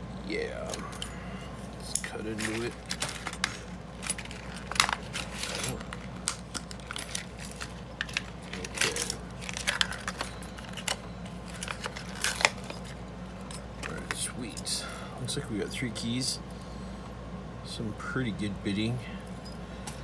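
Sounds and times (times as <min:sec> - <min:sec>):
metallic clinks of padlock and keys: 0:00.7 - 0:01.3, 0:02.3 - 0:15.0, 0:19.2 - 0:20.0.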